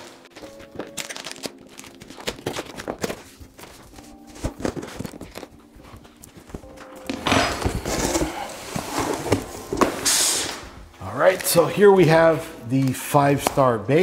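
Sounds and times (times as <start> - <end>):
packing tape ripping: 0.0 - 6.2
cardboard flaps scraping and crinkling: 1.1 - 10.8.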